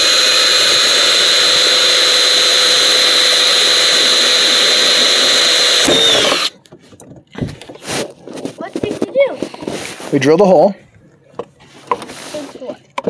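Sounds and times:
cordless drill whining: 0.0 - 6.6.

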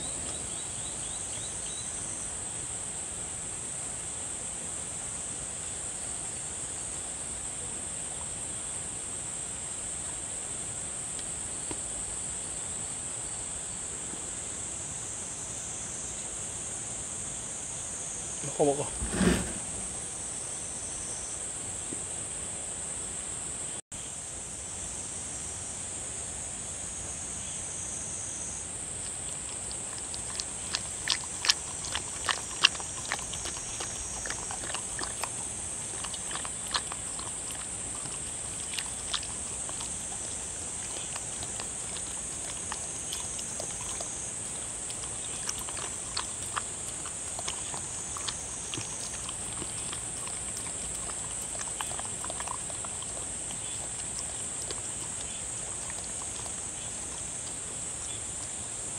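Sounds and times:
dog chewing and lapping: 29.0 - 58.9.

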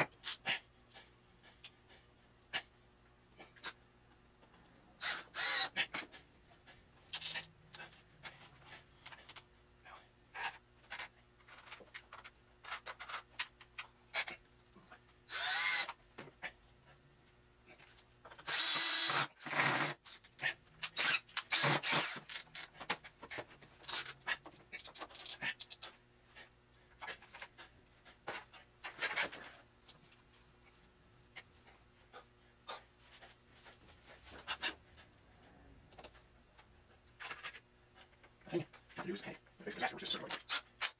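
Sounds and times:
cordless drill running: 5.0 - 5.7, 15.3 - 15.9, 18.4 - 20.0, 21.0 - 22.4
tools clicking and rattling: 10.8 - 14.8.

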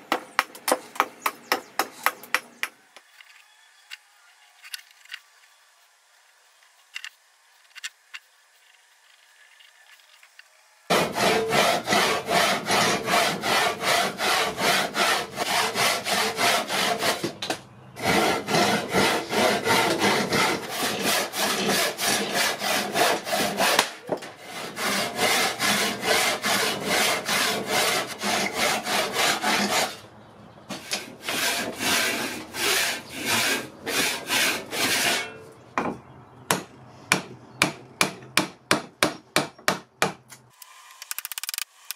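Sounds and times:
handsaw cutting wood: 10.9 - 17.4, 18.0 - 30.0, 30.7 - 35.3.

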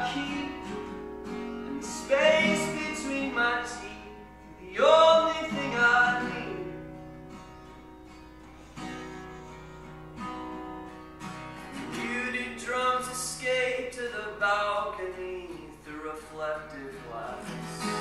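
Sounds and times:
man singing: 0.0 - 0.9, 1.7 - 6.9, 11.8 - 18.0
acoustic guitar strumming: 0.0 - 18.0.

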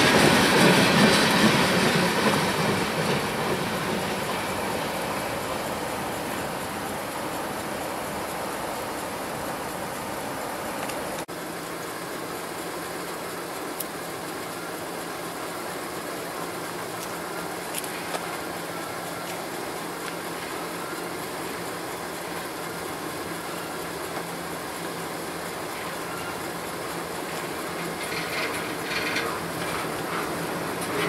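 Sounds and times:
freight train wheels rumbling: 0.0 - 31.0.

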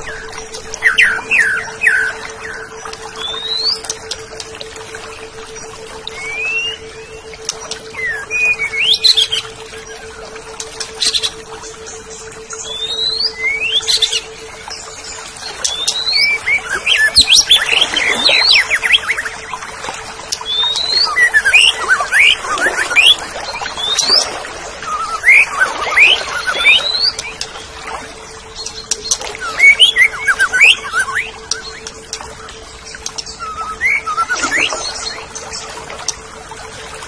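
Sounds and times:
bird whistles and chirps: 0.0 - 3.9, 6.0 - 9.5, 15.6 - 19.3, 20.4 - 27.5, 28.7 - 35.6
steady low hum: 0.0 - 37.0.

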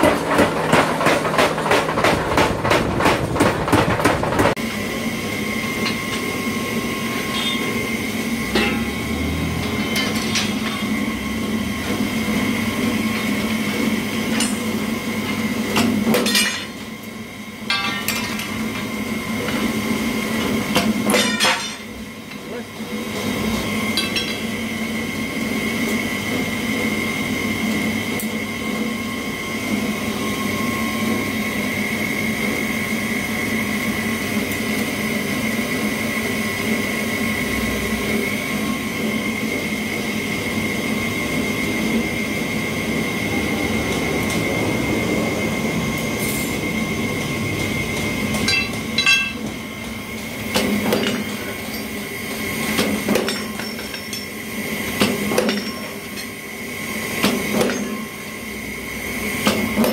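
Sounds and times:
machine humming and whining: 0.0 - 59.9
metal clinks and clank: 48.5 - 49.5.

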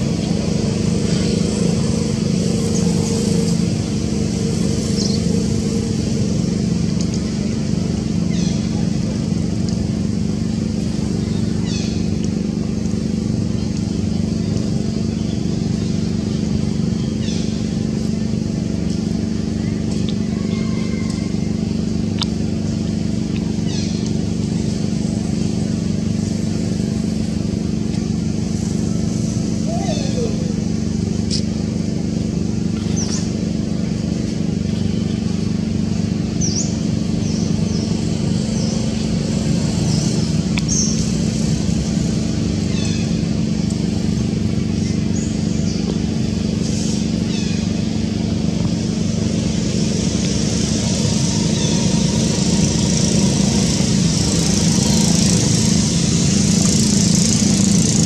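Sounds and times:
engine drone: 0.0 - 58.0
sharp click: 31.3 - 31.5.

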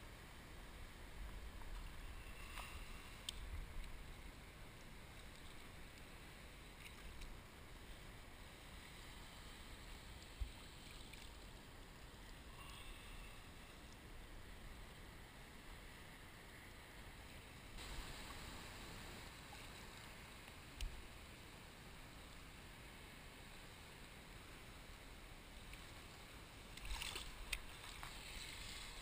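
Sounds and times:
wind: 0.0 - 29.0
shallow seawater washing: 26.0 - 29.0.

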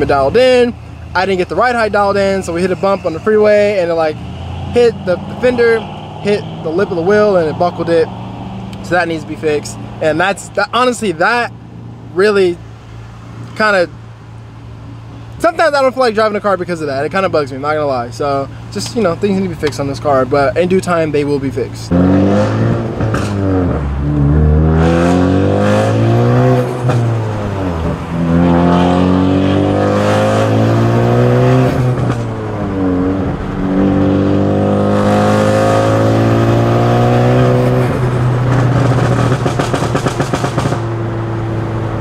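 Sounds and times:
car engine accelerating: 0.0 - 10.9, 21.9 - 42.0
exhaust pops and crackles: 37.6 - 41.1.

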